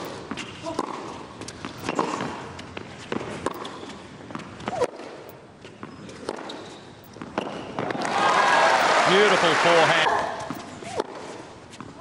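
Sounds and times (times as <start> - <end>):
racquet striking tennis ball: 0.0 - 5.4, 10.0 - 11.9
shoe squeaks: 1.5 - 7.8, 10.2 - 12.0.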